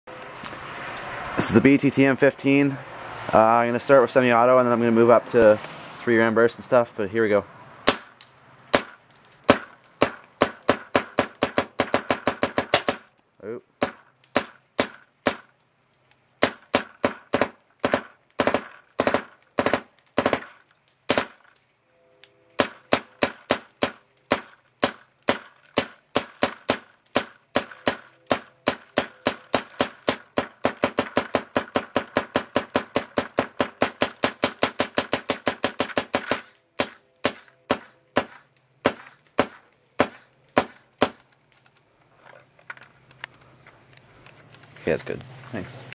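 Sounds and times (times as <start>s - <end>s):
paintball marker firing: 8.7s - 13.1s, 13.8s - 15.5s, 16.4s - 21.5s, 22.6s - 41.3s.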